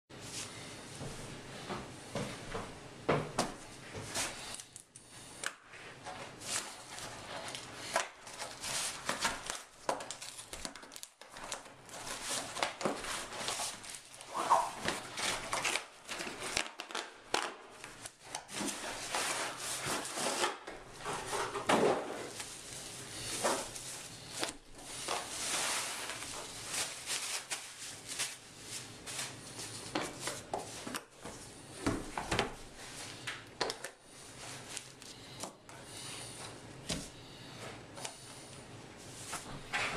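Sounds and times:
cardboard tearing and rustling: 6.4 - 17.5, 18.5 - 22.6, 23.2 - 30.9.

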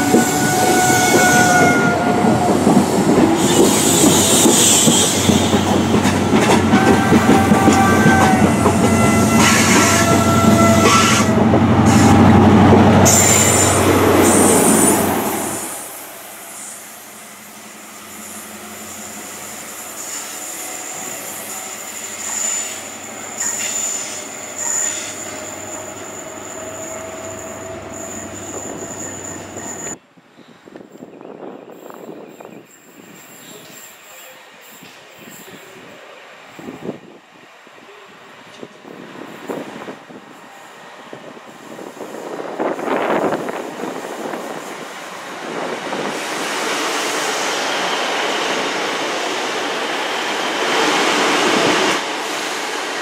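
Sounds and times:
train wheel squeals: 0.0 - 12.3, 13.0 - 30.0, 31.7 - 36.0, 45.5 - 52.0
diesel train drone: 0.0 - 30.0, 35.7 - 53.0.

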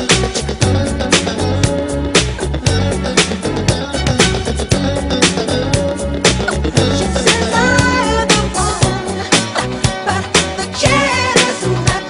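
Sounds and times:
dance music with strong beat: 0.0 - 12.0.

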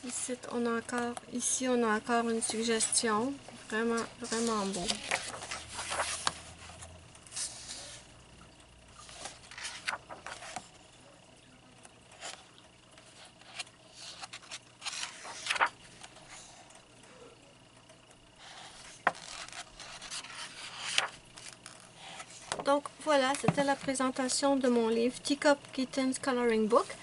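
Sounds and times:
paper pages rustling: 2.4 - 8.1, 9.0 - 10.7, 12.1 - 16.7, 18.4 - 24.0.

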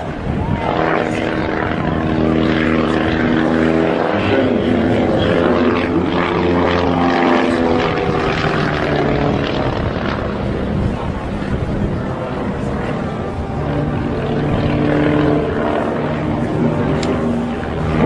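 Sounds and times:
biplane piston engine running: 0.7 - 18.0.

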